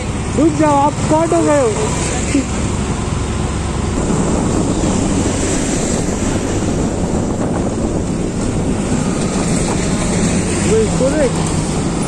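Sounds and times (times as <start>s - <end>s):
motorcycle engine and road rumble: 0.0s - 12.0s
wind rushing over microphone: 3.8s - 12.0s.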